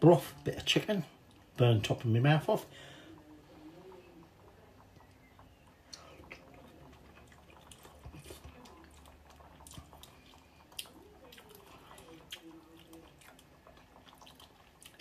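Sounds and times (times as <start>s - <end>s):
person chewing soup: 5.0s - 15.0s.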